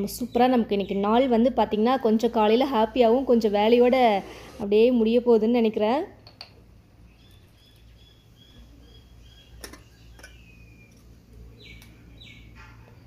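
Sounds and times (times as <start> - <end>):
bird chirping: 7.1 - 13.0.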